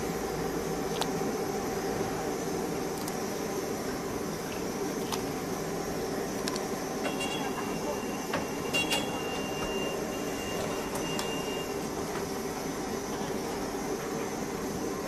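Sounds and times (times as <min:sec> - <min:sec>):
water boiling in a pot: 0:00.0 - 0:15.0
thin high whine: 0:06.9 - 0:15.0.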